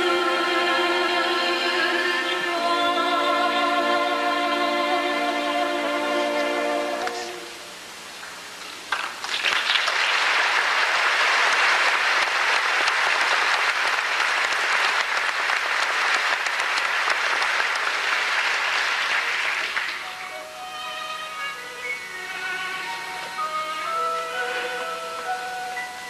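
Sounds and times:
orchestral strings: 0:00.0 - 0:08.1, 0:11.3 - 0:26.0
audience applauding: 0:08.9 - 0:20.4.

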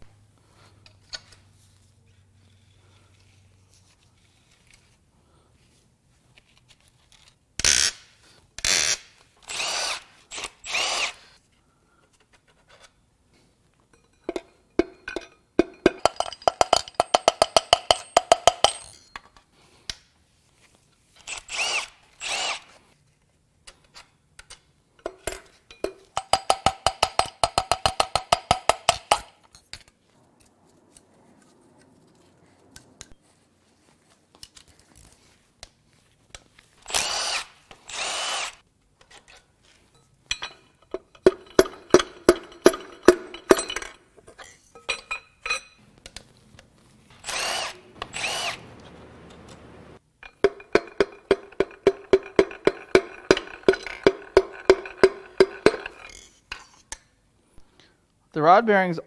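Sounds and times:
power tool whining: 0:09.5 - 0:11.2, 0:36.9 - 0:38.6, 0:47.2 - 0:50.0.

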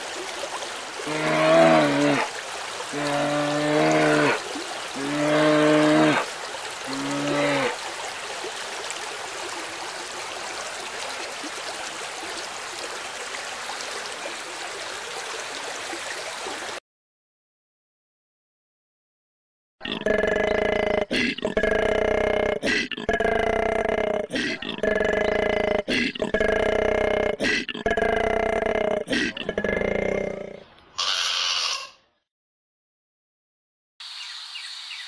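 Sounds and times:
water splashing: 0:00.0 - 0:16.8
bears moaning: 0:01.0 - 0:02.3, 0:02.9 - 0:04.4, 0:05.0 - 0:06.3, 0:06.9 - 0:07.8.

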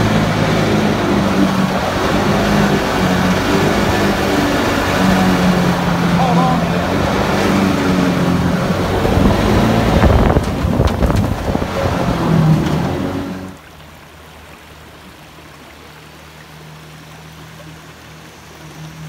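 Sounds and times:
distant jet boat hum: 0:00.0 - 0:19.0
jet boat engine running hard: 0:00.0 - 0:19.0
shallow river riffle rushing: 0:00.0 - 0:19.0
water rushing past hull: 0:00.0 - 0:19.0.

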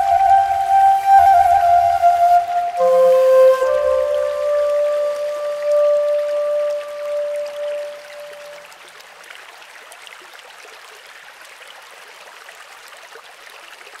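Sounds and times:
held music note: 0:00.0 - 0:08.6
stream water over stones: 0:00.0 - 0:14.0.

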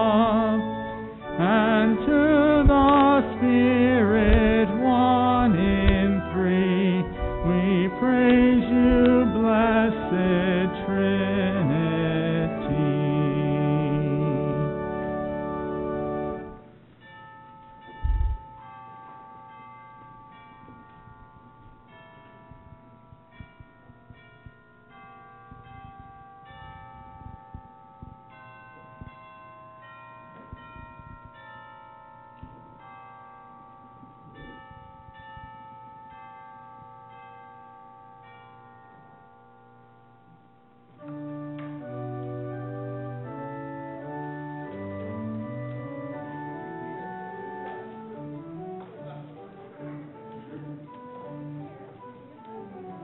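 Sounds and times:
church organ playing chords: 0:00.0 - 0:53.0
soft bell-like chimes: 0:16.0 - 0:42.8.

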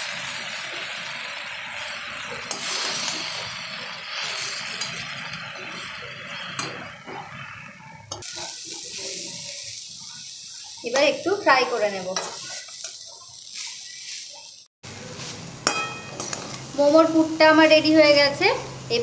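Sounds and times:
food sizzling in a pan: 0:00.0 - 0:19.0
spatula clinking against pan: 0:15.6 - 0:16.5.

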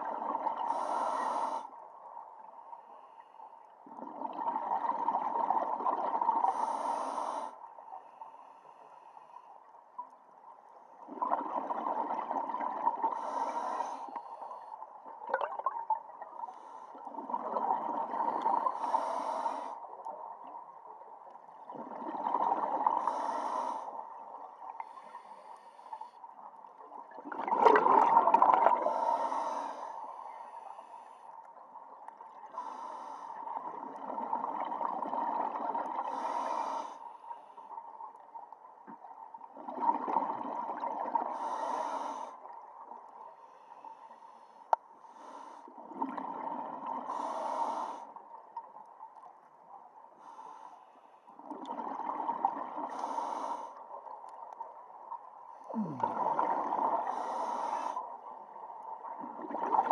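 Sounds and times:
diver breathing through regulator: 0:00.6 - 0:01.7, 0:06.4 - 0:09.5, 0:13.1 - 0:14.6, 0:18.6 - 0:19.8, 0:22.9 - 0:24.0, 0:28.7 - 0:31.3, 0:32.5 - 0:33.5, 0:36.0 - 0:37.7, 0:41.3 - 0:42.4, 0:47.1 - 0:48.2, 0:52.9 - 0:53.8, 0:55.7 - 0:58.1.

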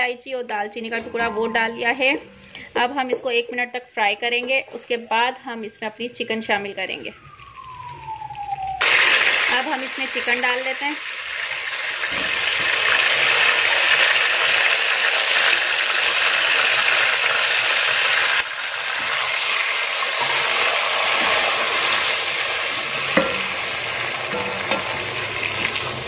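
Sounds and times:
chicken sizzling in hot oil: 0:06.9 - 0:26.0
wooden spoon knocking pot: 0:23.1 - 0:23.7, 0:24.3 - 0:25.1.

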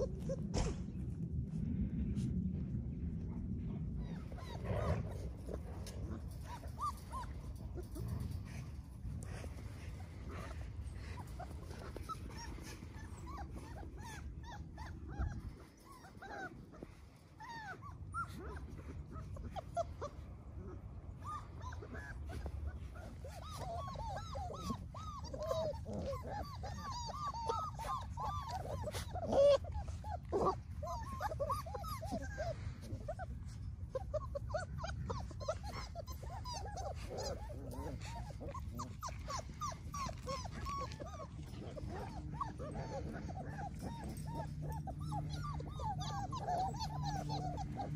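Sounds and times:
puppies whimpering and squeaking: 0:00.0 - 0:00.8, 0:03.9 - 0:47.9
low rumble: 0:00.0 - 0:14.4.

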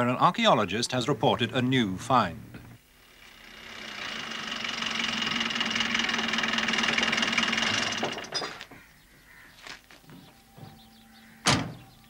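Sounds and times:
steady high whine: 0:00.5 - 0:08.4
small car engine running: 0:02.5 - 0:08.6.

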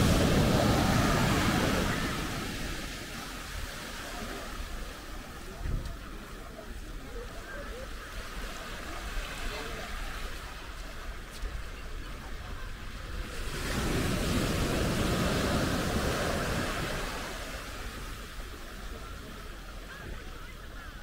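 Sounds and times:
ocean wave breaking on sand: 0:00.0 - 0:05.5, 0:13.1 - 0:18.5.

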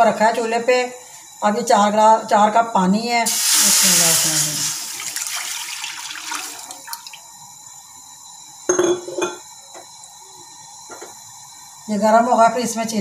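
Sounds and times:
water pouring into a metal pan: 0:03.3 - 0:07.2.

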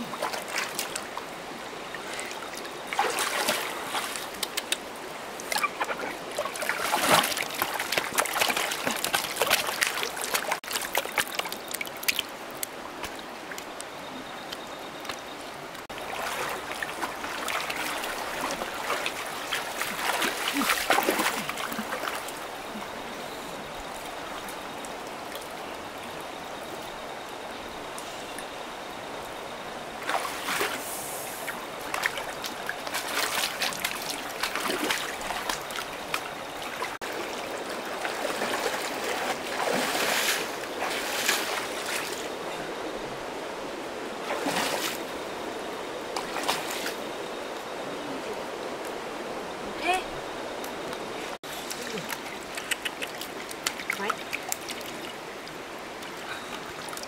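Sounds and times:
water running and trickling: 0:00.0 - 0:13.8, 0:51.4 - 0:57.0
water splashing: 0:00.0 - 0:13.8, 0:15.0 - 0:25.6, 0:30.0 - 0:42.7, 0:44.2 - 0:45.2, 0:46.1 - 0:47.1, 0:50.8 - 0:57.0.

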